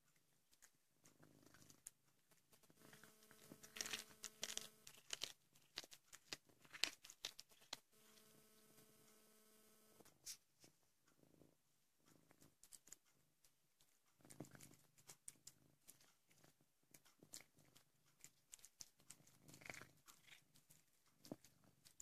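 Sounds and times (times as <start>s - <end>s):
cat crunching bones: 2.8s - 7.9s, 17.2s - 22.0s
steady hum: 8.0s - 10.1s.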